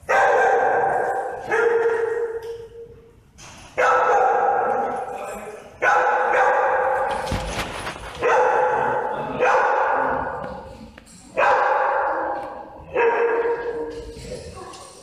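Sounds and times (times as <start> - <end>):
dog barking: 0.0 - 2.4, 3.8 - 5.1, 5.8 - 7.2, 8.2 - 10.4, 11.3 - 13.9.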